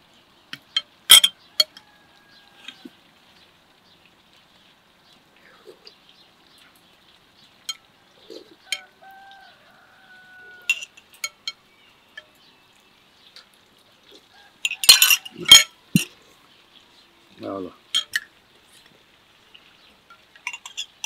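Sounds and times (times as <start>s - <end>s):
spoons clinking on plates: 0.6s - 1.8s, 10.6s - 11.6s, 14.6s - 16.1s, 17.9s - 18.3s, 20.4s - 21.0s.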